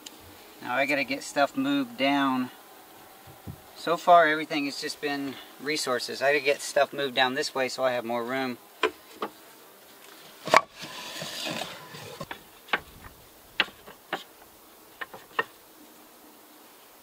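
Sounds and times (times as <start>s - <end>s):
bees buzzing: 0.0s - 17.0s
wooden frames knocking and scraping: 10.4s - 14.2s.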